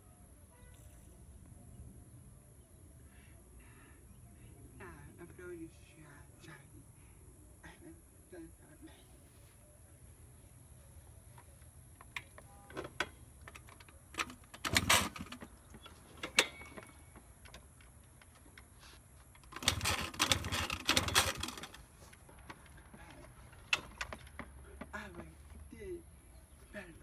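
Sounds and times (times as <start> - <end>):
scooter electric starter cranking: 12.1 - 18.5, 19.3 - 22.8.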